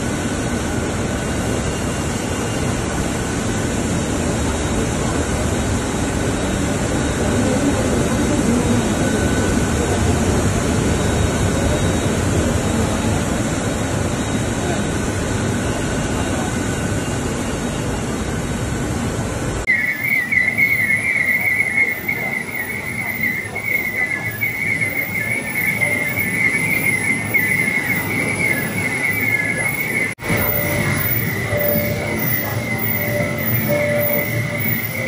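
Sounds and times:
high wavering machinery squeal: 0:00.1 - 0:18.5, 0:19.6 - 0:35.0
printing press running: 0:19.7 - 0:35.0.

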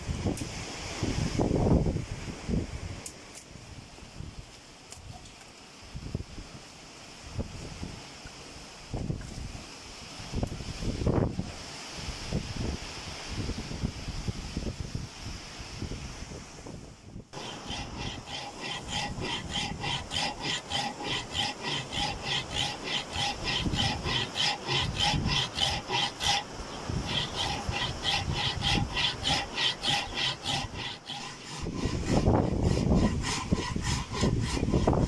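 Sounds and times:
hand tool rasping on wood: 0:17.4 - 0:35.0.

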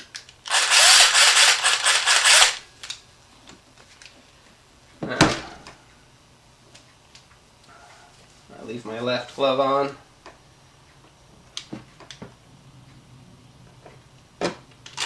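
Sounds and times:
cordless drill clattering: 0:00.5 - 0:02.6.

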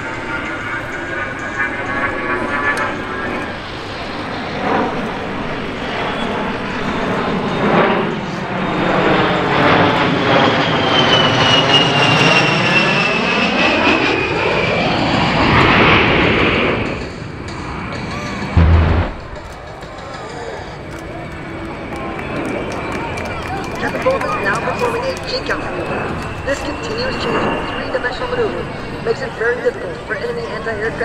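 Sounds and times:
jet engines whining flying past: 0:00.0 - 0:31.0.

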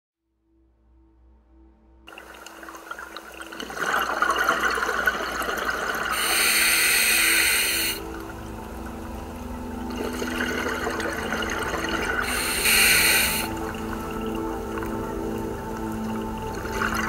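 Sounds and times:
scuba regulator breathing bubbles: 0:03.6 - 0:08.4, 0:09.9 - 0:14.8
regulator hiss: 0:05.8 - 0:08.4, 0:12.2 - 0:13.8.

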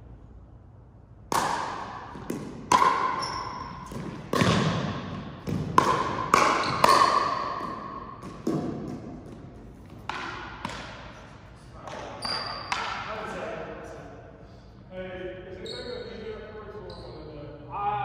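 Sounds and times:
ball hits echoing in a hall: 0:01.0 - 0:14.4.

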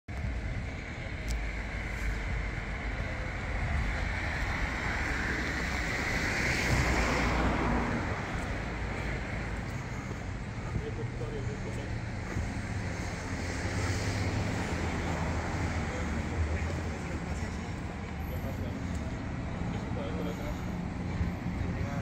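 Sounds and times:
street traffic noise: 0:00.1 - 0:22.0
vehicle passing: 0:01.8 - 0:22.0.

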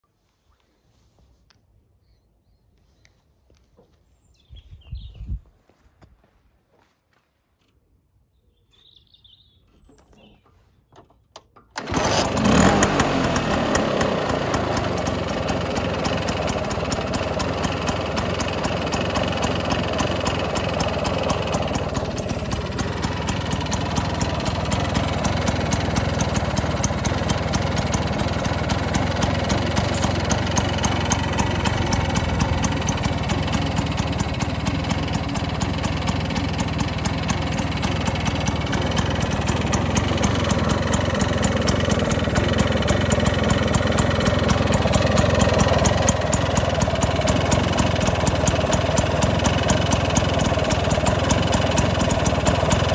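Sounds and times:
scooter engine idling: 0:11.6 - 0:52.9.

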